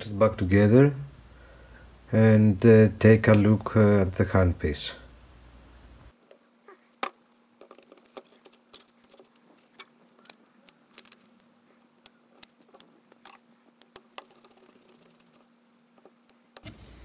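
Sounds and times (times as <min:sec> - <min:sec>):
faint steady hum: 0:00.0 - 0:17.0
metal and plastic parts clicking: 0:07.0 - 0:16.7.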